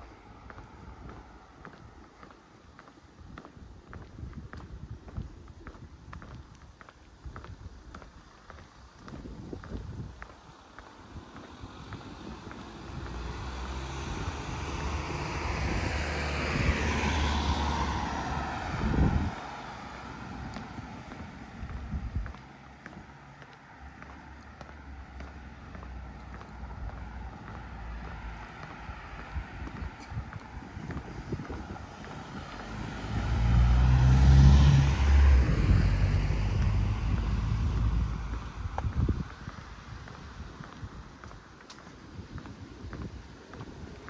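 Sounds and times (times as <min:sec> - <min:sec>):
motor vehicle passing: 0:11.0 - 0:41.3.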